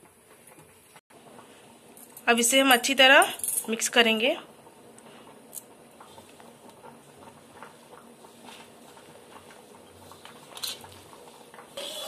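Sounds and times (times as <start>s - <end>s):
hand mixing batter in a bowl: 5.1s - 12.0s.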